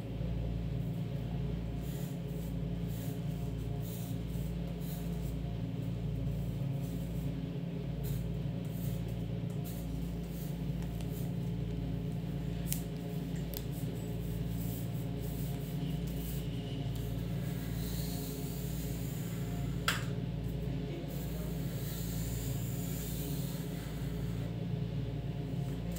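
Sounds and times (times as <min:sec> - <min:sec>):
pencil scratching on paper: 0:01.7 - 0:05.5.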